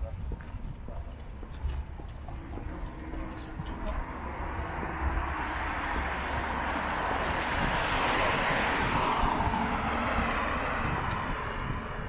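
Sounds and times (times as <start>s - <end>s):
car driving past: 2.7s - 12.0s.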